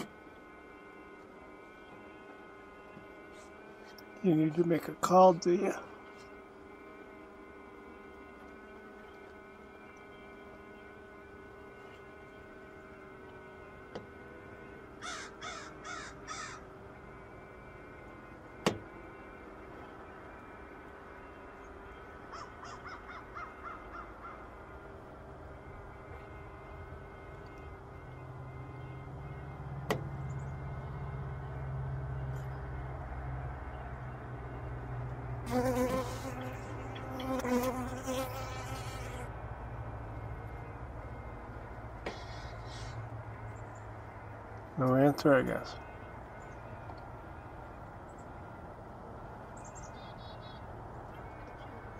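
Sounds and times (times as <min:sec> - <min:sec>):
honeybee buzzing: 0:00.0 - 0:29.6, 0:35.4 - 0:39.5
faint hum: 0:00.0 - 0:51.9
crow cawing: 0:15.0 - 0:16.7, 0:22.3 - 0:24.5.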